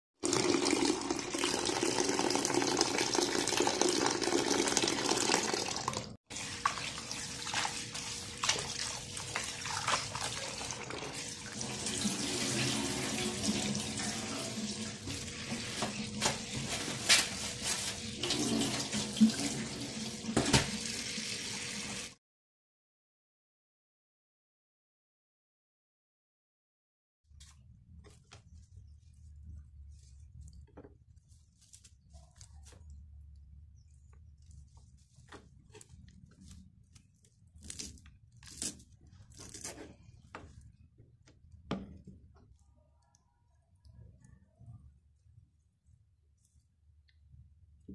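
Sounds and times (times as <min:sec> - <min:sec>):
kitchen tap running: 0:00.2 - 0:22.2.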